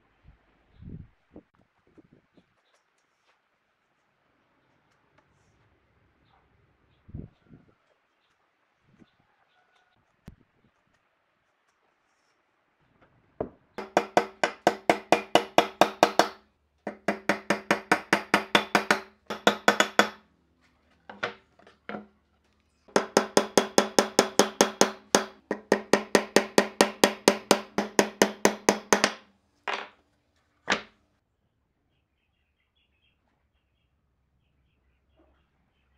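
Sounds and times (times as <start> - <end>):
rapid ringing knocks: 13.8 - 20.2, 22.9 - 29.2.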